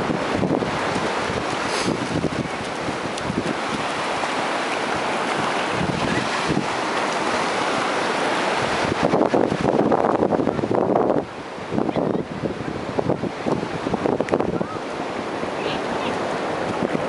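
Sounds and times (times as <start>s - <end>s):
surf washing up beach: 0.0s - 17.0s
wind buffeting microphone: 0.0s - 17.0s.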